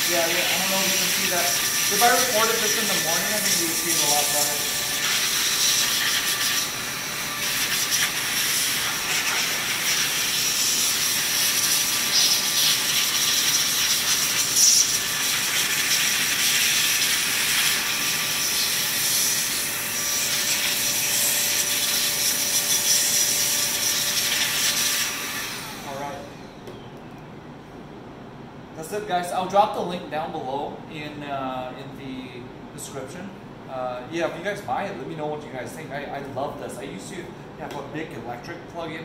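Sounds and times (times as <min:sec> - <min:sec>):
electric air duster whining: 0:00.0 - 0:26.6.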